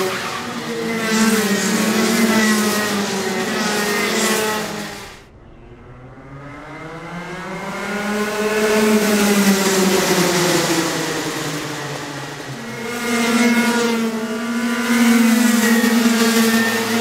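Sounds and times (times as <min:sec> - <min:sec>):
racing kart engines howling: 0:00.0 - 0:17.0.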